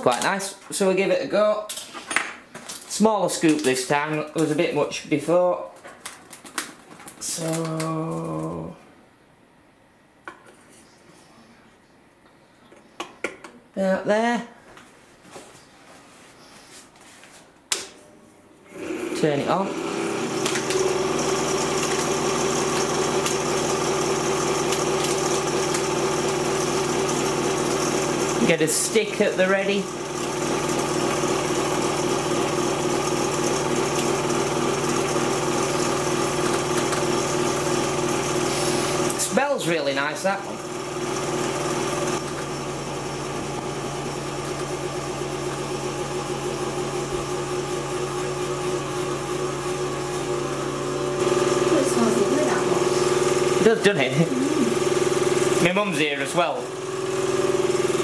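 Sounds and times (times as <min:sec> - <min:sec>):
candyfloss machine motor humming: 0:18.6 - 0:58.0.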